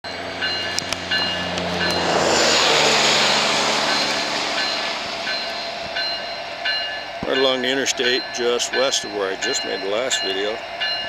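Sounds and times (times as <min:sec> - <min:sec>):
diesel locomotive engine drone: 0:00.0 - 0:11.0
train wheels on rails: 0:00.1 - 0:11.0
short high ringing: 0:03.8 - 0:11.0.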